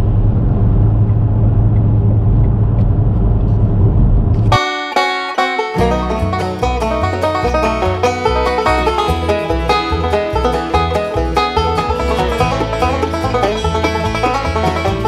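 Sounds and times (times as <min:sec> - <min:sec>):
car road and engine rumble: 0:00.0 - 0:04.6
bass line: 0:00.0 - 0:15.0
banjo tune: 0:04.5 - 0:15.0.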